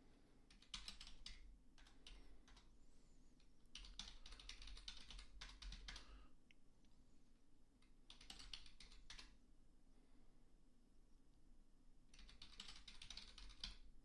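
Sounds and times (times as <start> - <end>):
keyboard typing: 0.5 - 2.7, 3.7 - 6.1, 7.8 - 9.4, 12.1 - 13.9.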